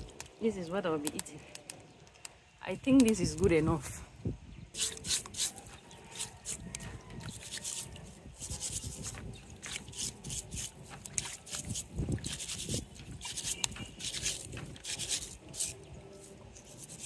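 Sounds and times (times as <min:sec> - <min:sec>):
steel wool scrubbing shells in water: 0:04.7 - 0:17.0.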